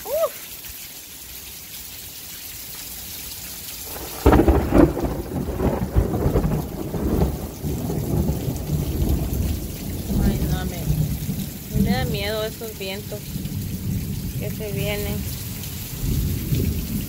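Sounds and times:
heavy rain hissing: 0.0s - 17.0s
thunderclap rumbling: 3.9s - 17.0s.

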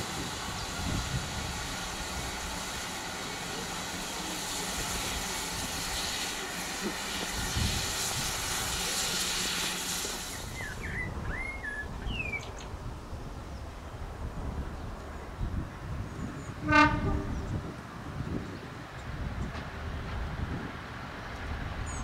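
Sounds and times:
steam locomotive hissing: 0.0s - 11.2s
bird chirps: 10.4s - 12.7s.

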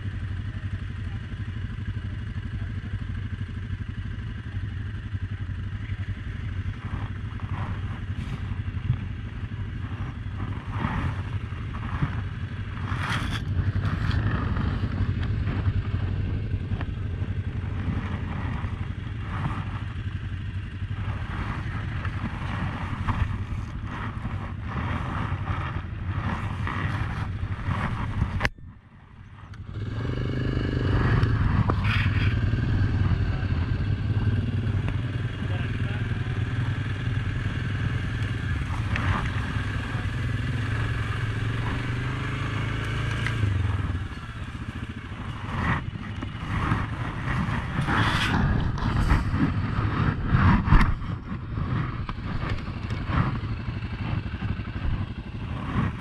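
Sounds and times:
atv engine idling: 0.0s - 56.0s
off-road vehicle engines running: 0.0s - 56.0s
light clatter: 6.8s - 16.0s, 31.0s - 32.4s, 42.8s - 56.0s.

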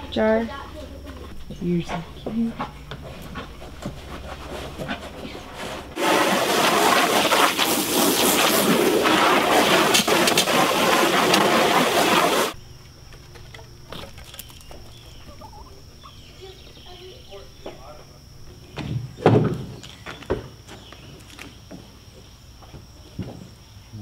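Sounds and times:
quiet barn and yard sounds: 0.0s - 24.0s
hose nozzle spraying water into tub: 6.0s - 12.6s.

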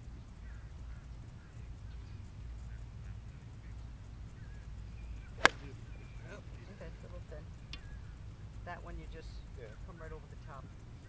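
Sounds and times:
golf club striking ball: 5.4s - 6.0s.

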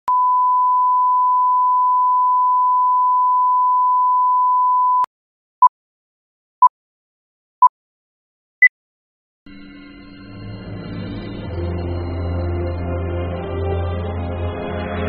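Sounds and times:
short beep: 0.1s - 5.1s.

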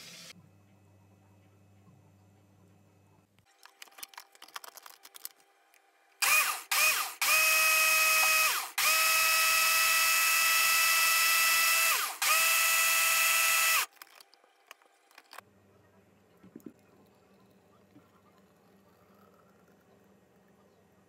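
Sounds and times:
blender motor whining: 6.2s - 13.9s.

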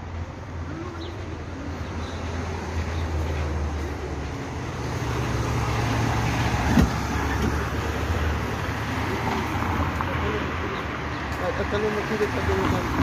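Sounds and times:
road noise: 0.0s - 13.0s
vehicle engine rumble: 0.0s - 13.0s.

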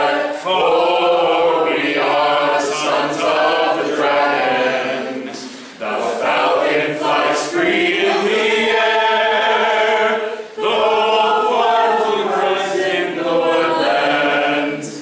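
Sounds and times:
group of people singing: 0.0s - 15.0s.

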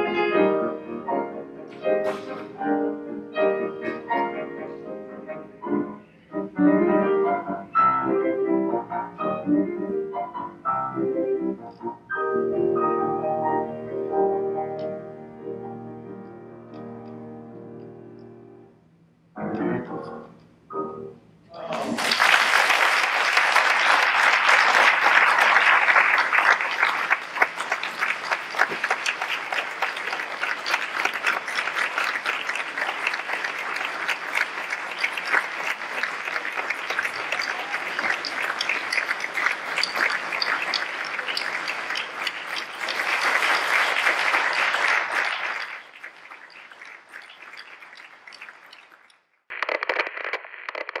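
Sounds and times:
concert audience applauding: 2.0s - 2.6s, 21.6s - 51.0s.

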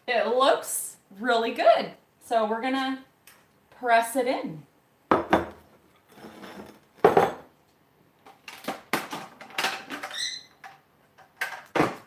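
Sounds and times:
dishes knocking and clinking: 5.1s - 7.5s
high squeak: 10.1s - 10.6s.

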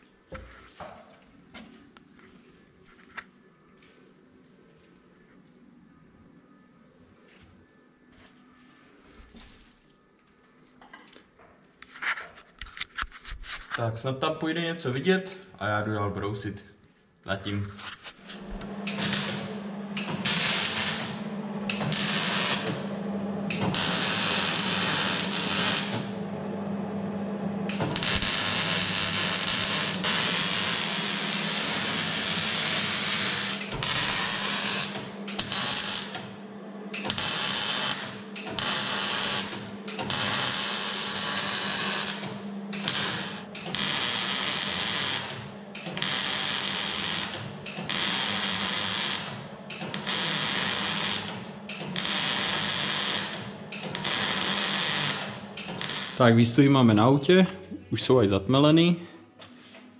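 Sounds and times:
welder arc crackling and sizzling: 18.1s - 56.2s
steady low hum: 18.2s - 52.6s.

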